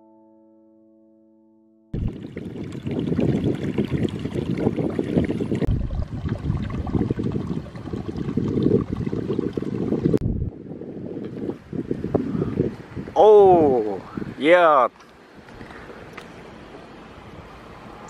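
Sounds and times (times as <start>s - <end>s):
piano chord: 0.0s - 1.9s
water running and trickling: 2.0s - 10.2s
heavy low rumble: 10.2s - 10.7s.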